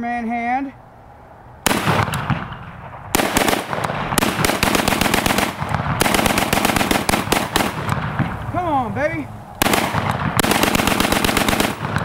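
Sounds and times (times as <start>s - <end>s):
rapid gunshots: 1.7s - 8.4s, 9.6s - 12.0s.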